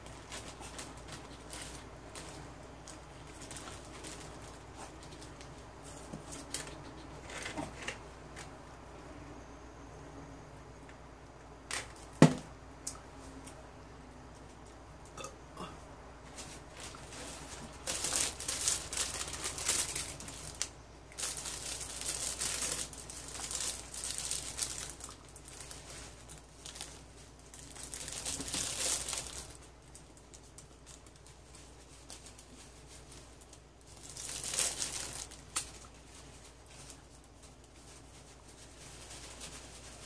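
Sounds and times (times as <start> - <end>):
plastic wrapper crinkling: 0.0 - 8.0, 16.5 - 40.0.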